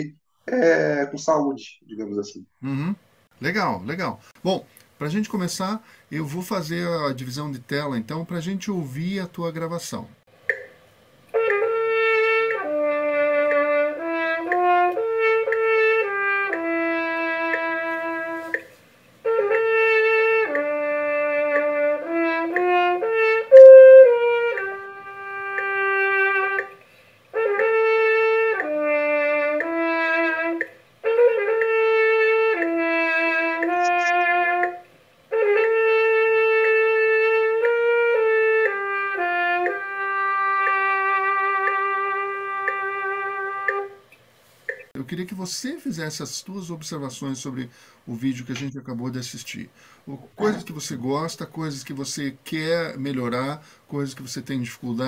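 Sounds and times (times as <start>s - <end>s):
solo trumpet melody: 11.3s - 18.6s, 19.2s - 44.1s.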